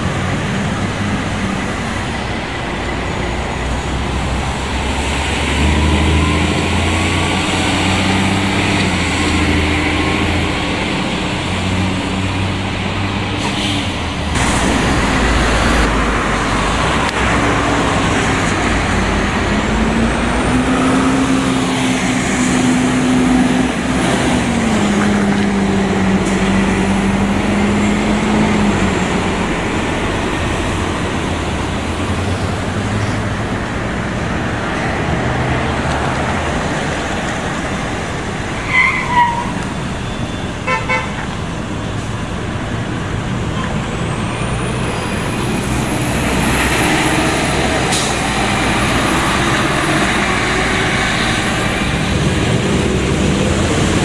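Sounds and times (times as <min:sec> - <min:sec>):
bus engine drone: 0:00.0 - 0:54.0
traffic noise: 0:00.0 - 0:54.0
horn toots: 0:40.6 - 0:41.2.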